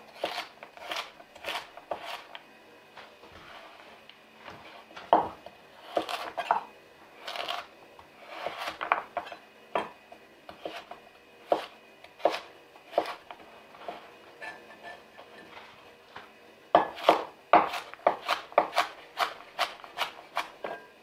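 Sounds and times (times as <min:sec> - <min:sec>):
knife scraping board: 0:00.1 - 0:02.4, 0:03.4 - 0:03.9, 0:05.8 - 0:06.6, 0:07.2 - 0:09.4, 0:10.5 - 0:15.5, 0:16.8 - 0:20.9.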